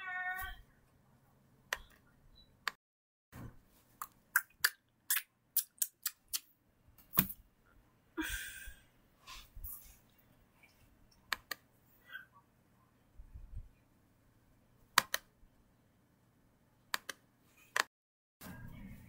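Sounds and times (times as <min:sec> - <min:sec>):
sharp clicks and taps: 0:16.9 - 0:17.2.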